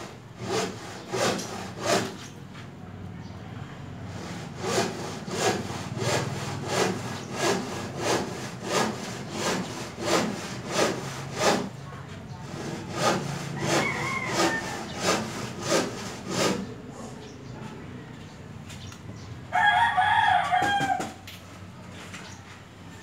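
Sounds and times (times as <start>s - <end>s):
rhythmic scraping strokes: 12.4s - 16.7s.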